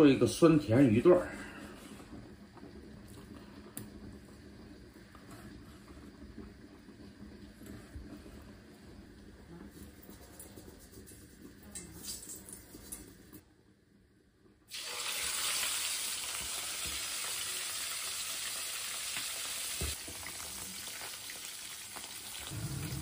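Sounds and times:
fish sizzling in oil: 0:14.7 - 0:23.0.

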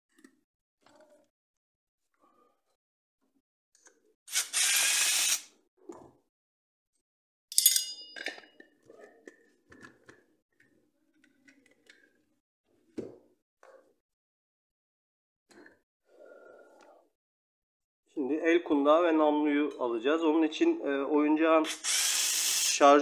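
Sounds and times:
sharp metallic clink: 0:07.5 - 0:08.4.

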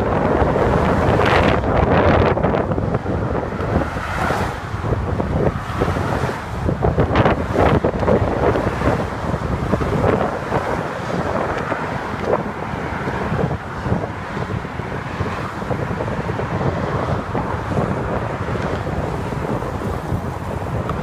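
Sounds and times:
car traffic rushing past: 0:00.0 - 0:21.0
wind blowing across microphone: 0:00.0 - 0:21.0.

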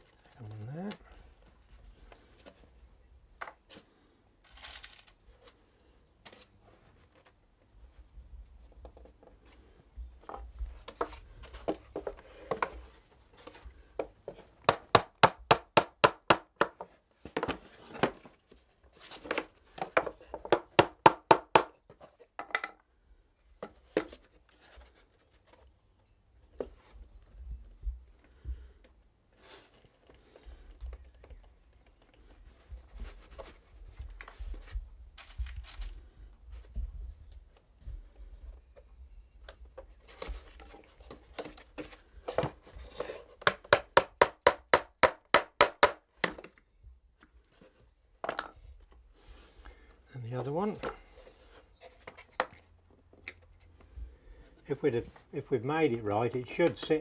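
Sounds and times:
hammer driving nails into wood: 0:14.6 - 0:16.9, 0:20.4 - 0:21.8, 0:43.4 - 0:46.4.

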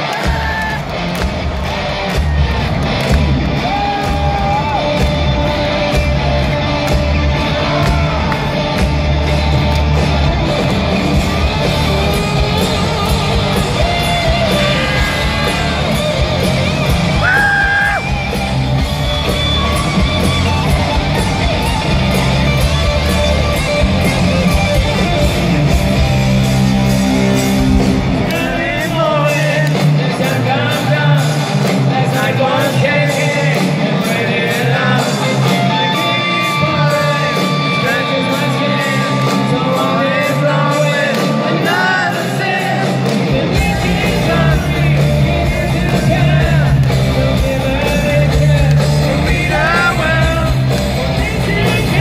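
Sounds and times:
audience yelling and whooping: 0:00.0 - 0:25.6
live hard rock band: 0:00.0 - 0:52.0
sustained lead guitar notes: 0:04.9 - 0:30.0.

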